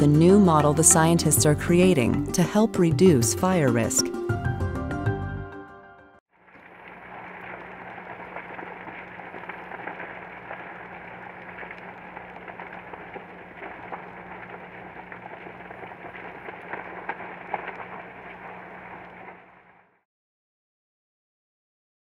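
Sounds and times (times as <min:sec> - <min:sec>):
sharp pops of fire: 0:06.4 - 0:20.0
vegetation burning with crackles: 0:06.4 - 0:20.0
steady low hum: 0:06.6 - 0:19.8.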